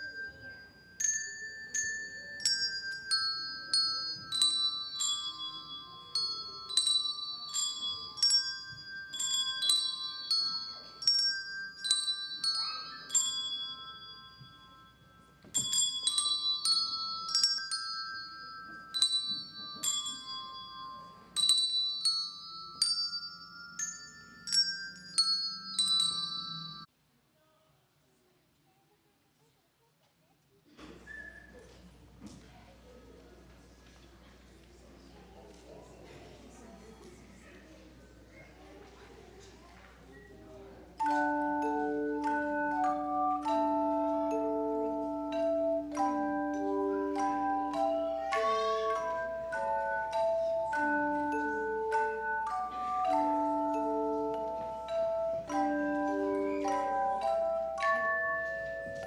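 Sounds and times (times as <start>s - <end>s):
handbells ringing a melody: 0.0s - 26.9s, 41.0s - 59.0s.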